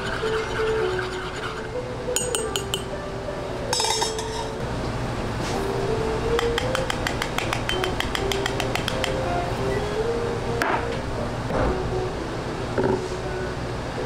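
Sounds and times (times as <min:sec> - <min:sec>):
soft background music: 0:00.0 - 0:14.0
spoon clinking against cup: 0:02.2 - 0:02.9, 0:03.7 - 0:04.5, 0:06.4 - 0:09.2.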